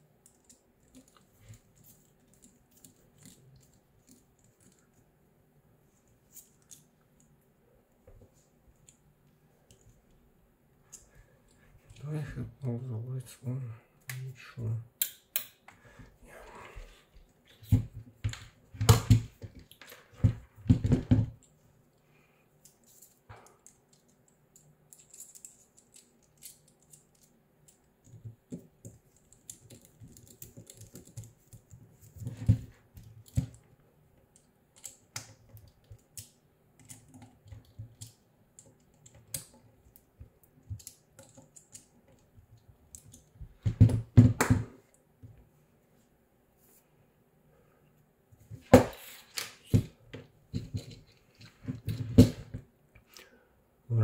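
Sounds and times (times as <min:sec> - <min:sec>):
clicks and knocks of parts handled: 0:00.2 - 0:05.0, 0:22.6 - 0:44.0, 0:48.4 - 0:53.2.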